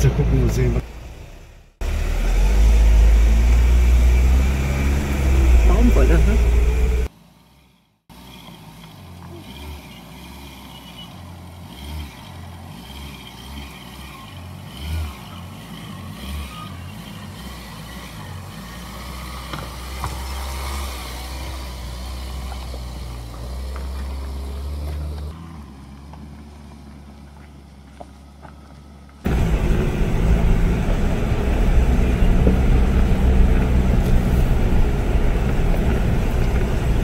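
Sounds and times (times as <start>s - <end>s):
truck engine at low revs: 0.0s - 37.0s
tyres crunching over gravel: 8.6s - 37.0s.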